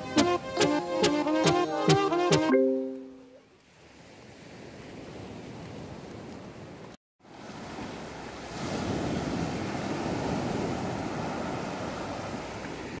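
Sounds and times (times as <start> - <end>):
sea waves breaking on shore: 7.2 - 13.0.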